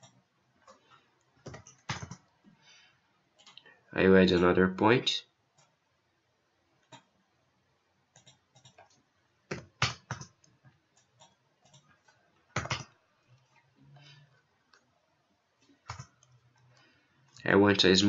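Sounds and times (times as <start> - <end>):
computer mouse clicks: 0.0 - 2.3, 3.4 - 3.7, 8.1 - 14.1, 15.8 - 16.8
keyboard keystrokes: 1.5 - 2.2, 12.6 - 12.9.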